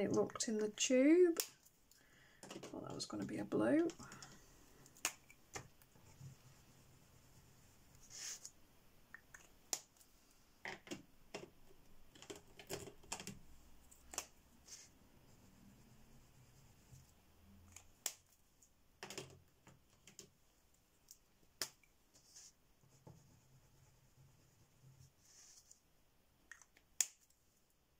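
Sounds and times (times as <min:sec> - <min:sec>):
plastic crayon clicks and taps: 0:02.4 - 0:05.8, 0:10.6 - 0:13.4.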